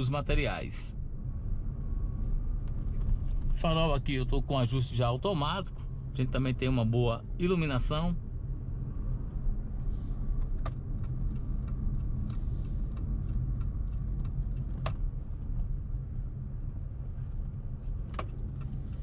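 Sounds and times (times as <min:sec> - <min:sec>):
engine and road rumble in cabin: 0:00.0 - 0:19.0
faint regular ticking: 0:10.6 - 0:15.0.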